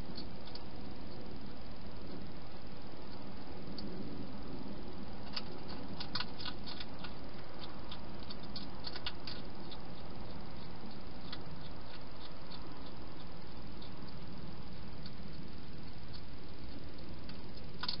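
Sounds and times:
hedgehog clicking and crunching: 0:00.0 - 0:01.2, 0:05.2 - 0:18.0
steady hiss: 0:00.0 - 0:18.0.

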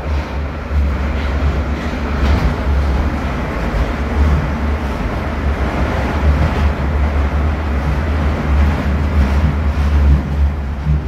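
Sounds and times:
subway train rumbling: 0:00.0 - 0:11.0.

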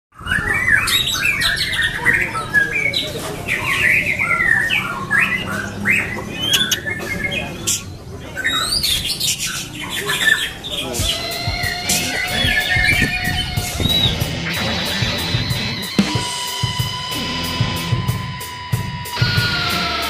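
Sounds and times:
bird singing whistled phrases: 0:00.2 - 0:14.3
sharp bird clicks: 0:06.0 - 0:07.9.

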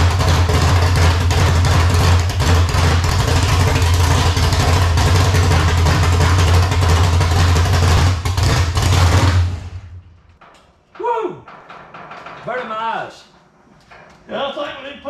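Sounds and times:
car engine idling: 0:00.0 - 0:10.4.

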